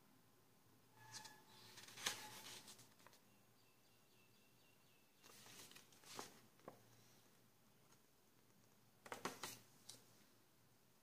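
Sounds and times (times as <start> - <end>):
paper pages rustling: 1.0 - 3.2, 5.2 - 6.8
faint high chirping: 3.2 - 5.5.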